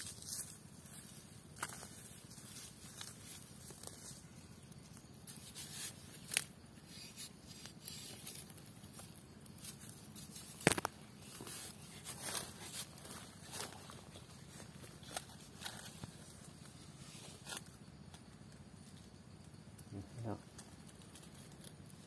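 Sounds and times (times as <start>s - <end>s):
crumbling soil: 0.0s - 18.0s
digging stick scraping soil: 4.9s - 17.8s.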